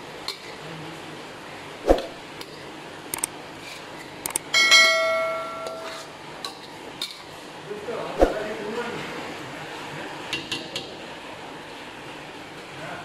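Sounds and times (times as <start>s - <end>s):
wok ringing: 4.5s - 6.1s
metal spatula scraping in wok: 5.7s - 6.2s.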